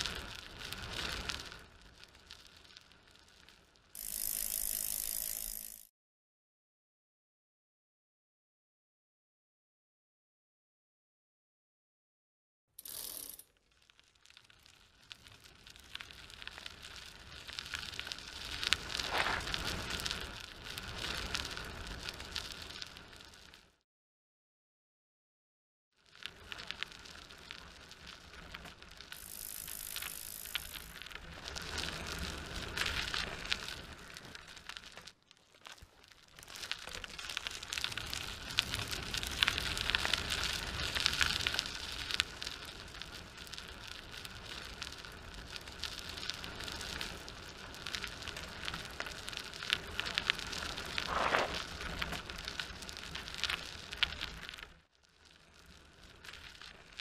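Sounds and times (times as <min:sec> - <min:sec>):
quadcopter motors: 0:04.0 - 0:05.9, 0:12.8 - 0:13.4, 0:29.2 - 0:31.0.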